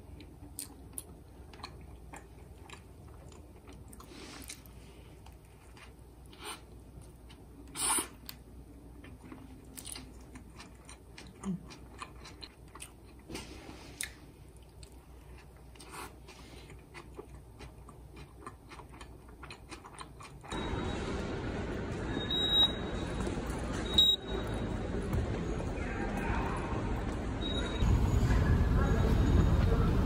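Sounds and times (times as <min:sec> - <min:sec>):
person chewing crunchy food: 0:00.2 - 0:08.4, 0:09.0 - 0:20.5.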